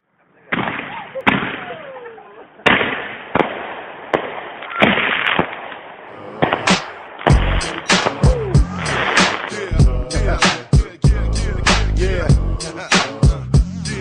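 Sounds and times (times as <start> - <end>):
fireworks bangs: 0.5 - 11.0
fireworks crackling: 2.6 - 11.0.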